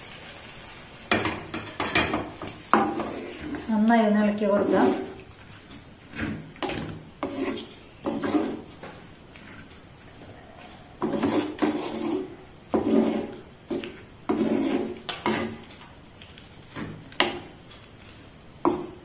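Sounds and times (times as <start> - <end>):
wooden spatula scraping pot: 1.2 - 15.8.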